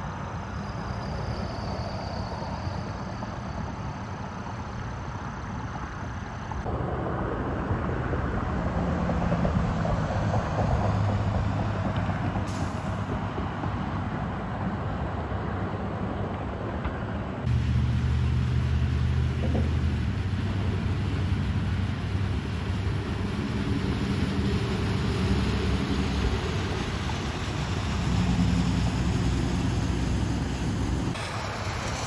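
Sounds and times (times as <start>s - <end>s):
constant noise wash: 0.0s - 32.0s
vehicle engines humming: 0.0s - 32.0s
deep engine rumble: 6.6s - 31.9s.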